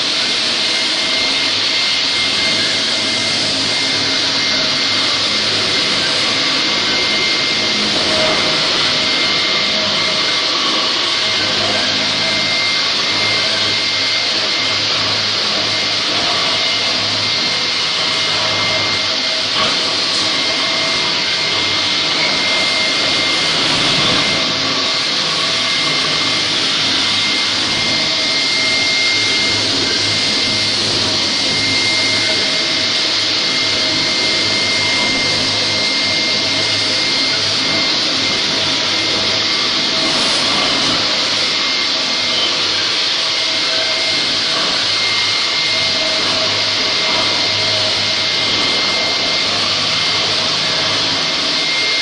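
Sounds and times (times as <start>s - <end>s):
concrete floor grinder running: 0.0s - 52.0s
dust collector rushing: 0.0s - 52.0s.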